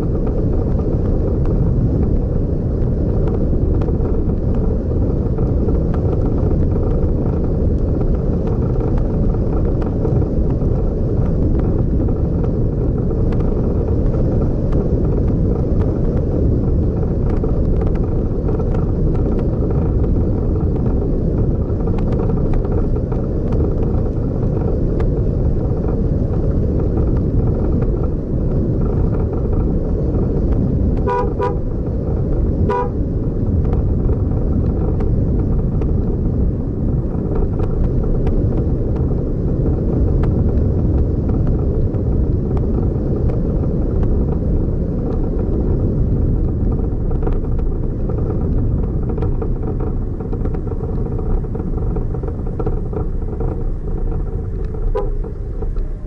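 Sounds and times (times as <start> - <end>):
vehicle rumbling on road: 0.0 - 56.0
car horn toots: 31.0 - 31.7, 32.7 - 33.0.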